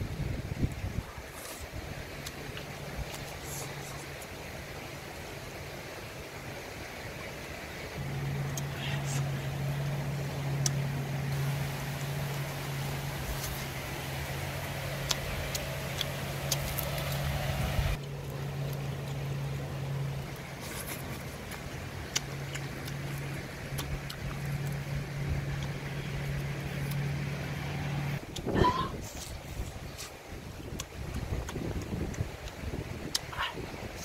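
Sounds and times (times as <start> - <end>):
river running over stones: 0.0 - 34.0
steady low hum: 7.7 - 34.0.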